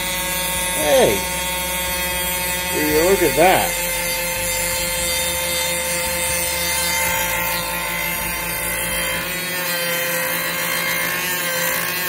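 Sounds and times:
cnc spindle milling wood: 0:00.0 - 0:12.0.

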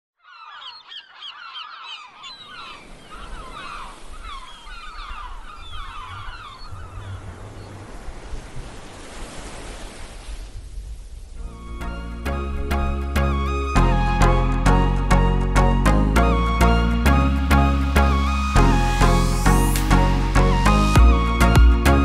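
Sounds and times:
flock of birds calling: 0:00.2 - 0:08.0.

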